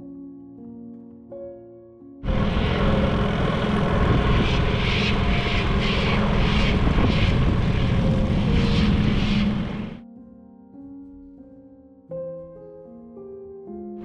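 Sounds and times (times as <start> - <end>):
wind noise: 2.2 - 10.0
outboard motor running: 2.3 - 10.0
rhythmic hiss: 2.3 - 10.0.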